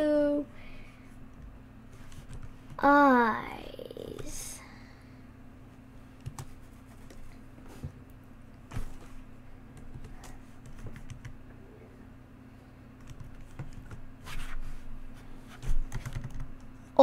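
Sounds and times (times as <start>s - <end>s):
faint low hum: 0.0s - 17.0s
keyboard keys tapping: 6.2s - 7.2s, 9.7s - 11.4s, 13.0s - 14.0s, 15.7s - 16.6s.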